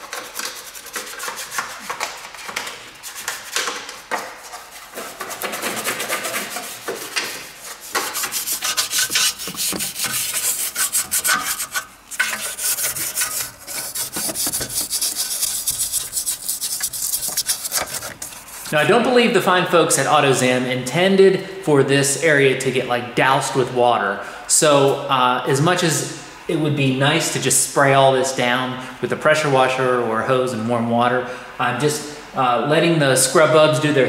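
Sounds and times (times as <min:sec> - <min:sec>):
toothbrush scrubbing: 0:00.0 - 0:18.8.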